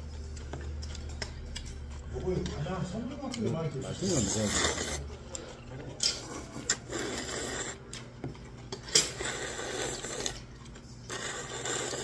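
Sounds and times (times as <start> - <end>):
person slurping noodles: 4.0 - 5.1, 6.2 - 7.8, 8.9 - 10.4, 11.1 - 12.0.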